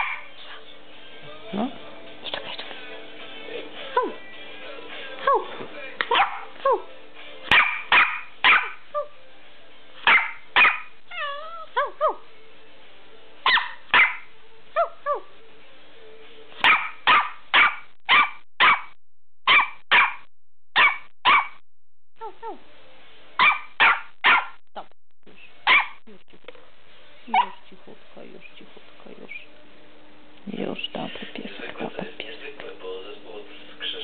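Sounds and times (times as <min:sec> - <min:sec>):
puppy barking in sharp yaps: 0:00.0 - 0:00.3, 0:06.1 - 0:06.5, 0:07.5 - 0:08.8, 0:10.0 - 0:10.9, 0:13.5 - 0:14.9, 0:16.6 - 0:18.9, 0:19.5 - 0:20.2, 0:20.8 - 0:21.6, 0:23.4 - 0:24.6, 0:25.6 - 0:26.0
puppy whiny yelps: 0:07.5 - 0:09.1, 0:10.0 - 0:12.2, 0:13.5 - 0:14.2, 0:16.6 - 0:18.8, 0:19.5 - 0:20.2, 0:23.4 - 0:24.5, 0:25.6 - 0:26.0.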